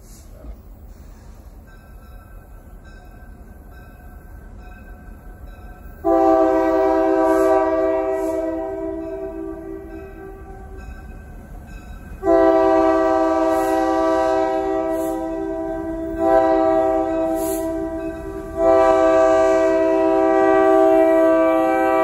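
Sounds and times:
locomotive air horn blowing: 0:06.0 - 0:10.8, 0:12.2 - 0:22.0.

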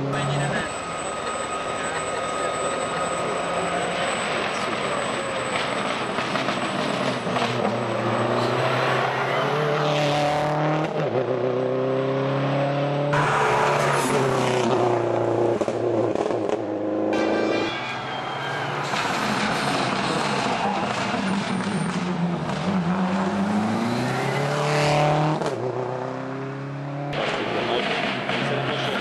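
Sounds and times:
rally car engine revving hard: 0:06.5 - 0:17.2, 0:19.1 - 0:29.0.

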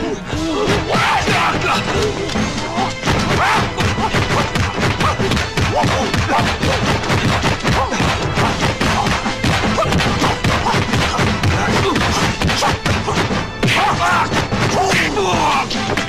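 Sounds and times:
action music: 0:00.0 - 0:16.0
punch and kick impacts: 0:03.0 - 0:15.0.

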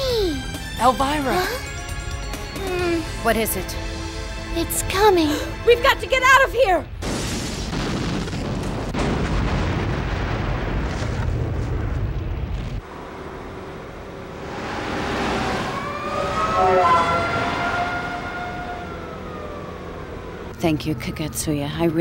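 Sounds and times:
rumble of building burning: 0:06.2 - 0:16.6
car engine passing: 0:12.8 - 0:20.5.

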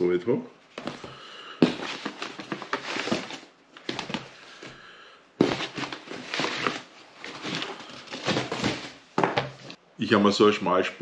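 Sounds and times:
packing paper rustling and crackling: 0:00.8 - 0:04.8, 0:05.4 - 0:09.7.

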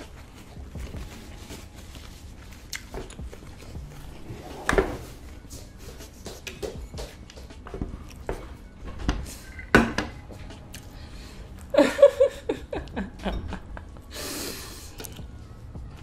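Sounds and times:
chewing: 0:00.0 - 0:04.2.

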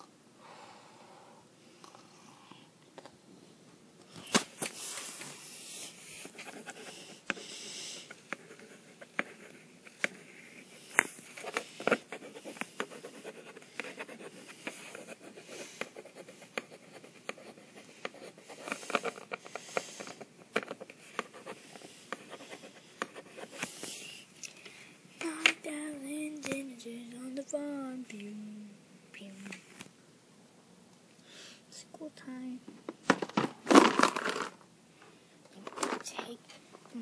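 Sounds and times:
pencil scratching on paper: 0:05.8 - 0:24.1.

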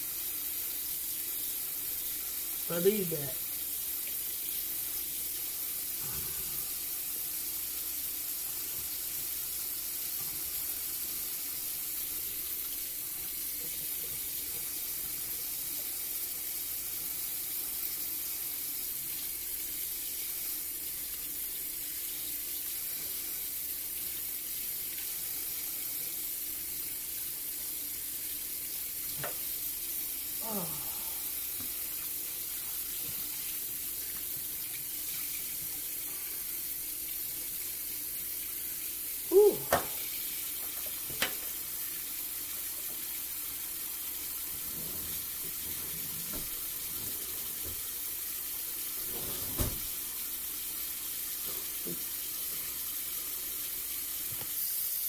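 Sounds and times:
tap running into a steel sink: 0:39.7 - 0:40.0, 0:40.6 - 0:41.6.

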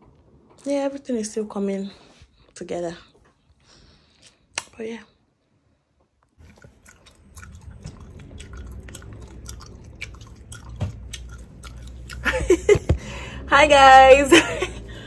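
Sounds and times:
low rumble: 0:07.1 - 0:15.0.

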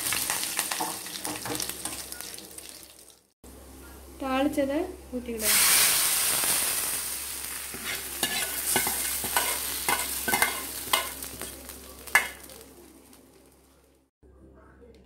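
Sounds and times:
hot oil sizzling: 0:00.0 - 0:03.3, 0:05.4 - 0:13.7.

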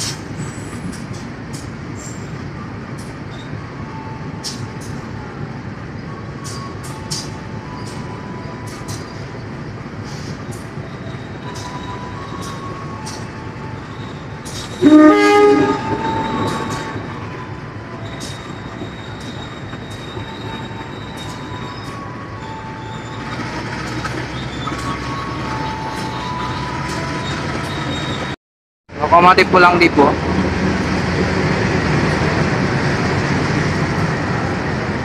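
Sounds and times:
high wheel squeals: 0:02.0 - 0:28.4
loud train horn: 0:14.8 - 0:17.4
train wheels clicking over rail joints: 0:23.1 - 0:28.3.

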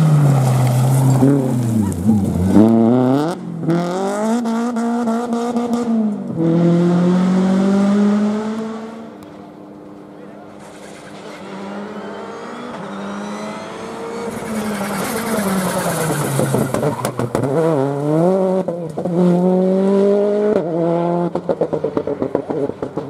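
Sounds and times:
rally car engine revving: 0:00.0 - 0:23.0
engine cracks and pops: 0:14.4 - 0:17.6.

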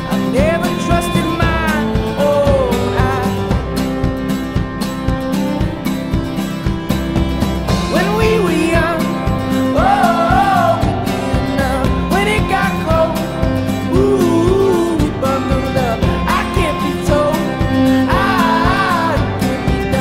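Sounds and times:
country song with guitar: 0:00.0 - 0:20.0.

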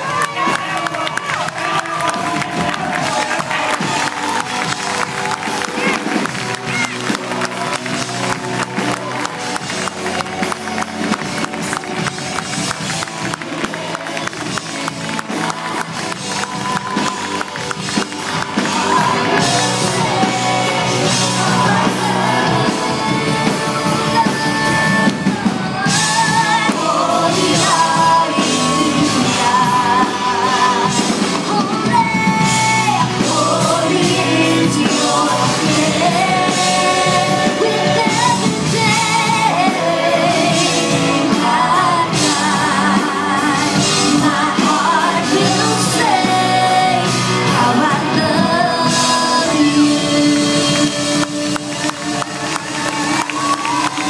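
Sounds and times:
live rock band playing: 0:00.0 - 0:54.0
person singing long notes: 0:11.6 - 0:54.0.

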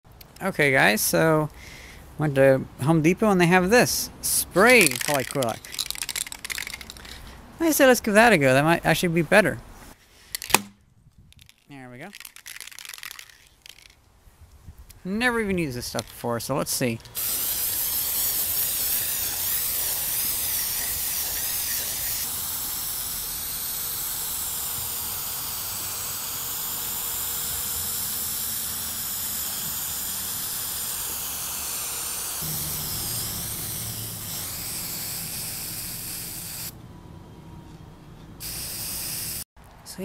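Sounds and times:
aerosol spray can hissing: 0:04.6 - 0:07.2, 0:17.2 - 0:36.7, 0:38.4 - 0:39.5.

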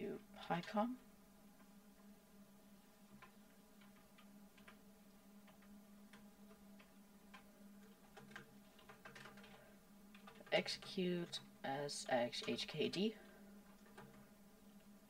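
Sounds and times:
low room hum: 0:00.0 - 0:15.0
keyboard keys clicking: 0:05.4 - 0:11.4, 0:13.7 - 0:14.2.

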